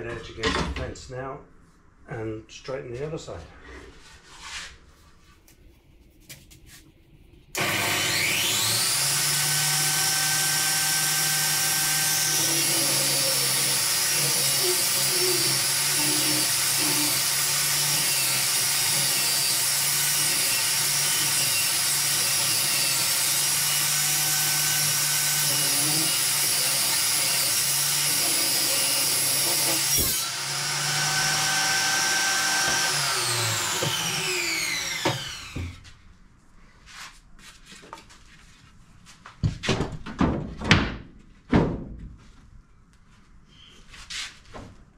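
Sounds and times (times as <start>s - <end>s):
circular saw ripping wood: 7.6s - 35.8s
circular saw whining: 7.6s - 35.8s.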